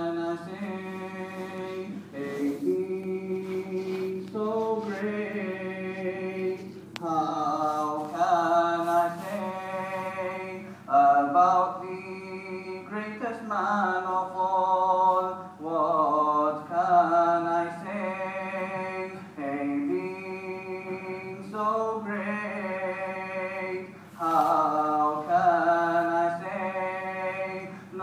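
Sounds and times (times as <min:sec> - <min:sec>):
man singing unaccompanied: 0:00.0 - 0:28.0.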